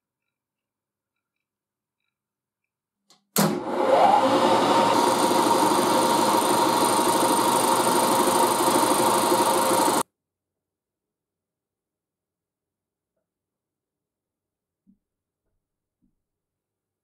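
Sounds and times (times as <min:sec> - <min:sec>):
end mill cutting brass: 0:03.5 - 0:10.0
milling machine spindle running: 0:03.6 - 0:10.0.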